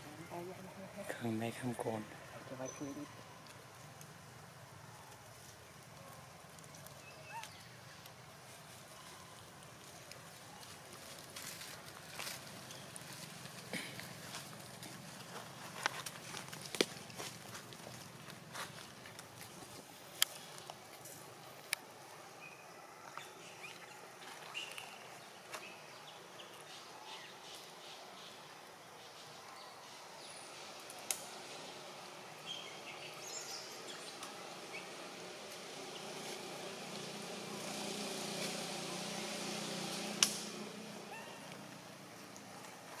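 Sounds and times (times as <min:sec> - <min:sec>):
small clicks and rustles: 0:03.4 - 0:21.9.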